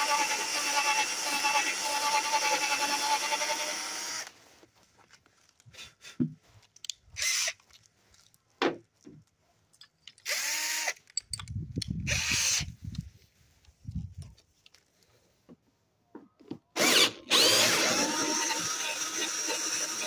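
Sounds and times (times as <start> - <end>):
cordless drill running: 0.0 - 4.3, 7.2 - 7.5, 10.2 - 11.0, 12.1 - 12.7, 16.8 - 20.0.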